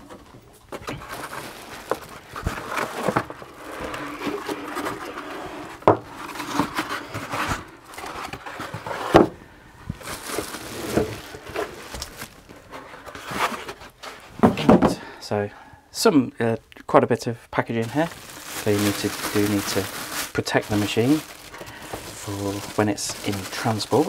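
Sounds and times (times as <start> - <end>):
paper pulp scraping on plastic: 0.7 - 9.2, 10.0 - 14.3, 17.8 - 24.0.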